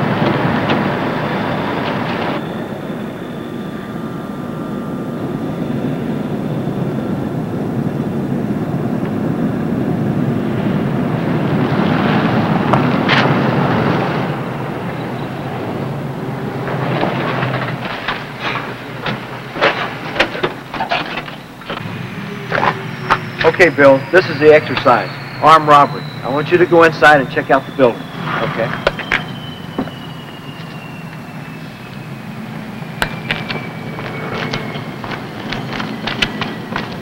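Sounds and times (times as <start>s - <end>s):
engine rumble: 0.0s - 37.0s.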